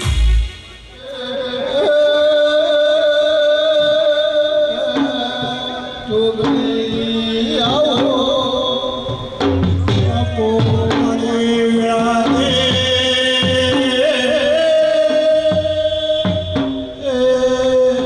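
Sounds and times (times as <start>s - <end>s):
heavy drum beat: 0.0s - 2.0s, 4.7s - 17.2s
person singing devotional song: 1.0s - 18.0s.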